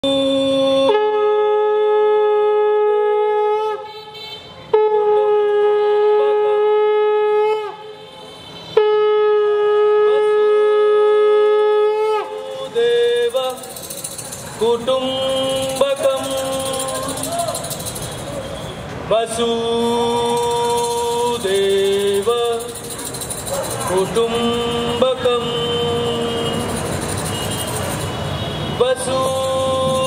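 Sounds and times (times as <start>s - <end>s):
conch shell blowing: 0.8s - 12.6s, 25.3s - 29.8s.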